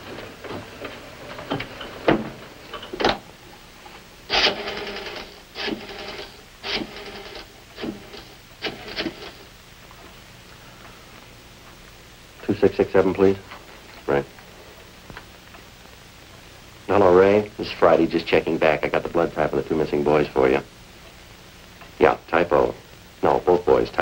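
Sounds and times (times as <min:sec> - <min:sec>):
rotary telephone dial whirring: 0:04.3 - 0:09.4.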